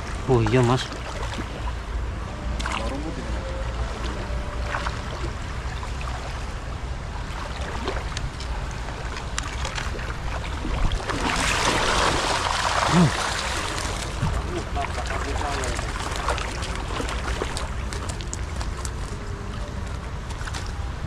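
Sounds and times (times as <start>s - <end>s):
low wind rumble on microphone: 0.0s - 21.0s
net splashing in water: 9.4s - 19.1s.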